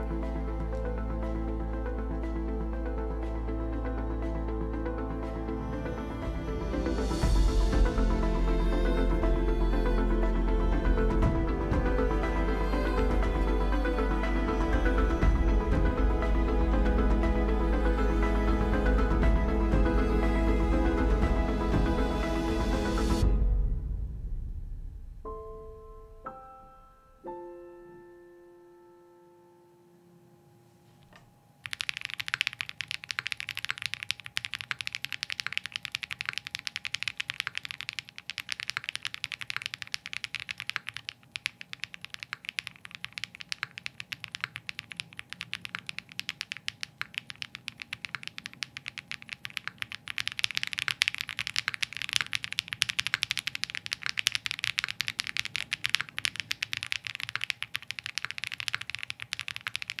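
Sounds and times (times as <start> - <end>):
fast mechanical keyboard typing: 31.6 - 60.0.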